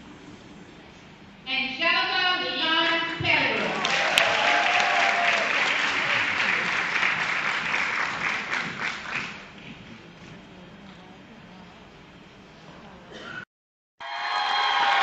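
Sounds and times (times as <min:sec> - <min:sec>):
audience applauding: 0:03.5 - 0:09.7, 0:14.0 - 0:15.0.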